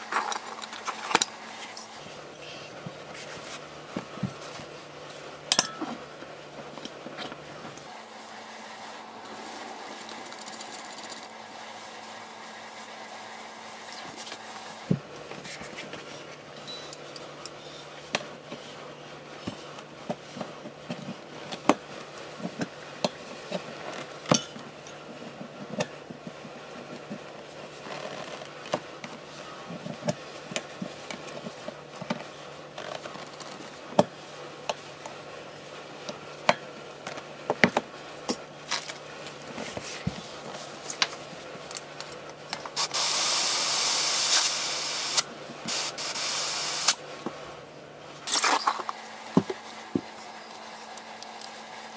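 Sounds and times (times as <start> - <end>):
air hissing from inner tube: 42.8 - 47.0.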